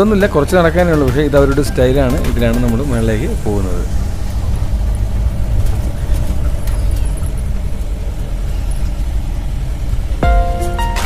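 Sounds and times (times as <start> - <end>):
background music: 0.0 - 5.4, 10.2 - 11.0
vehicle engine rumble: 0.0 - 11.0.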